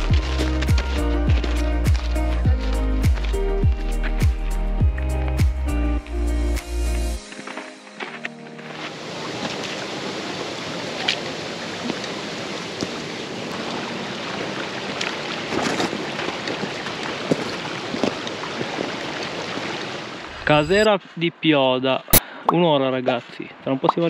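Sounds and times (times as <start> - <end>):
boots stepping on stones: 0.0 - 6.2, 7.2 - 9.8, 16.6 - 18.3
stream rushing over rocks: 7.4 - 20.9.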